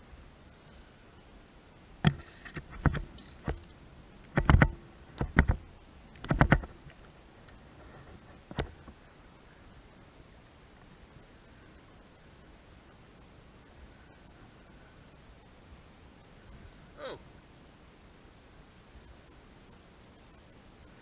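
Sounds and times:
sharp knocks and clunks: 2.0s - 7.0s.

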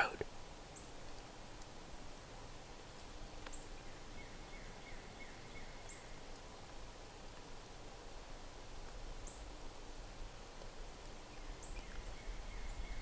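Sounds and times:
songbird chirps: 0.7s - 1.1s, 2.9s - 6.8s, 11.2s - 13.0s.

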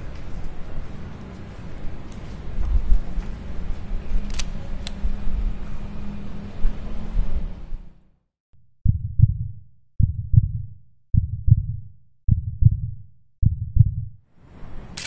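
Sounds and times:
heartbeat thumps: 8.8s - 14.2s.

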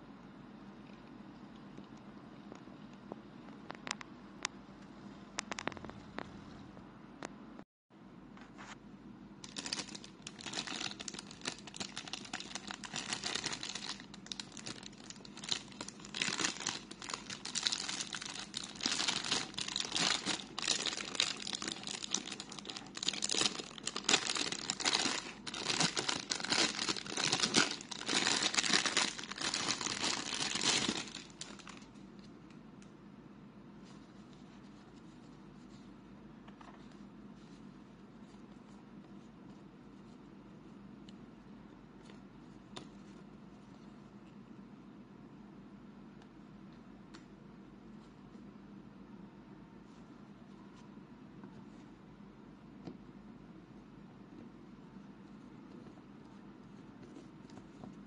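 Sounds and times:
plastic bag crinkling: 9.4s - 32.0s.

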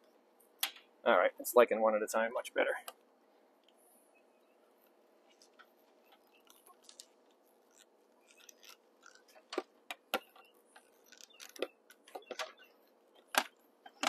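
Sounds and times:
faint steady hum: 0.0s - 14.0s
wires and metal fitting handled: 5.2s - 12.6s.

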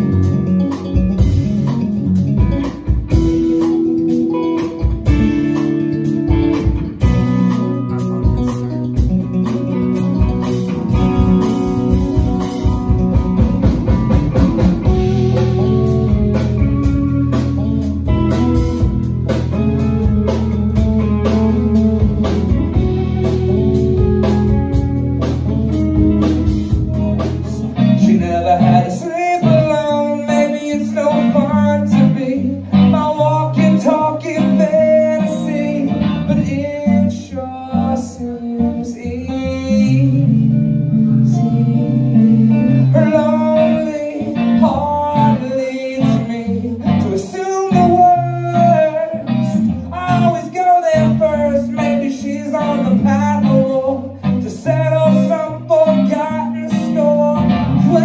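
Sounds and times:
live band music: 0.0s - 58.0s
man singing: 26.2s - 58.0s.

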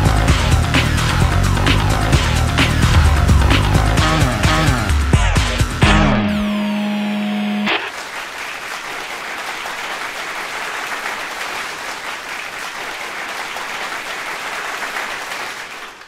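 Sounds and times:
held musical note: 2.4s - 7.4s
applause: 7.9s - 16.0s.

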